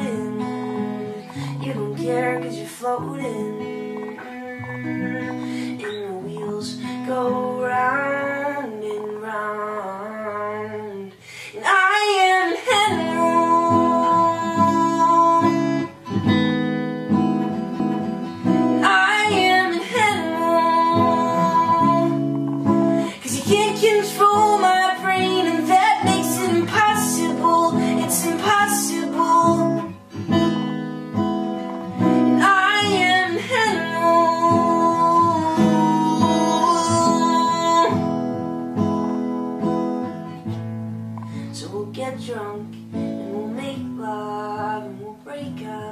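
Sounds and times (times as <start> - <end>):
acoustic guitar strumming: 0.0 - 45.9
man singing: 32.4 - 38.0.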